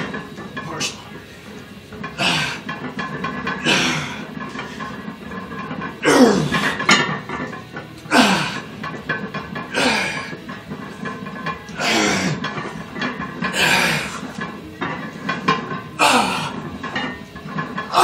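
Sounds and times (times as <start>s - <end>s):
weightlifter grunting and exhaling: 2.1s - 2.7s, 3.6s - 4.3s, 6.0s - 6.8s, 8.0s - 8.7s, 9.7s - 10.3s, 11.8s - 12.4s, 13.5s - 14.3s, 16.0s - 16.6s.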